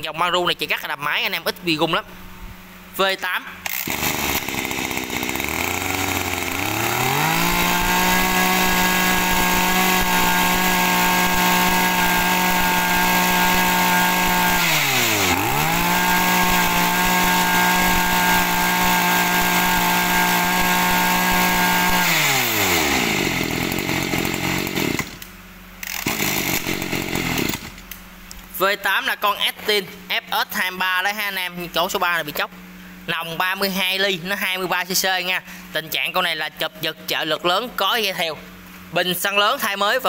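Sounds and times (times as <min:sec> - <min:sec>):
brush cutter engine revving: 0:03.6 - 0:28.0.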